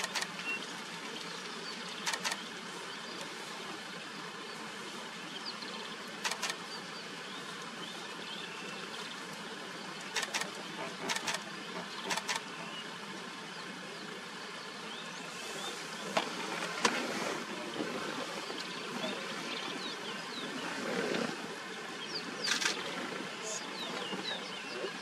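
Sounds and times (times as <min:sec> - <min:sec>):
sharp clicks: 0:00.0 - 0:00.4, 0:02.0 - 0:02.4, 0:06.2 - 0:06.6, 0:10.2 - 0:11.4, 0:12.0 - 0:12.4.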